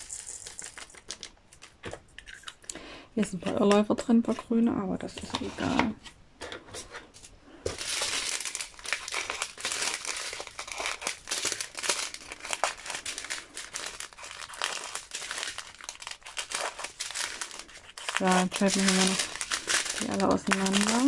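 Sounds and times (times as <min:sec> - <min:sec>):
plastic bags crinkling: 0:00.0 - 0:02.7, 0:07.6 - 0:21.0.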